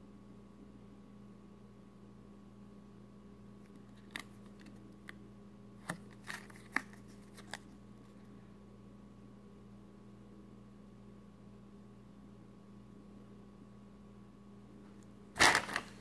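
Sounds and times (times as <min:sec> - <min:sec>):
plastic sleeve crinkling: 0:15.4 - 0:16.0.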